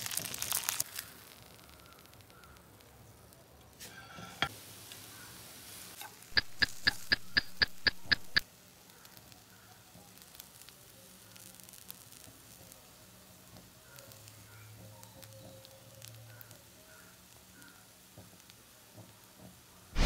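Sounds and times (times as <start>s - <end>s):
noodles sizzling in a frying pan: 0.0s - 6.9s, 8.4s - 20.0s
sharp evenly spaced clicks: 6.4s - 8.4s.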